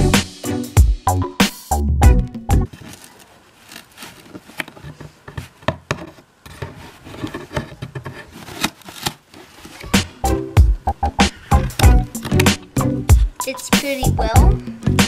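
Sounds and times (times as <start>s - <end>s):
scissors cutting cardboard: 2.7s - 10.2s
handling knocks: 9.7s - 13.4s.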